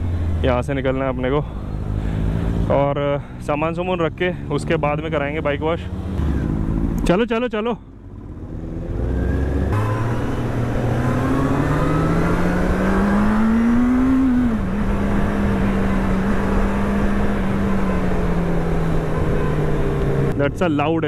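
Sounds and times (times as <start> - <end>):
road noise: 0.0 - 21.0
motorcycle engine accelerating: 3.9 - 7.3, 7.9 - 20.8.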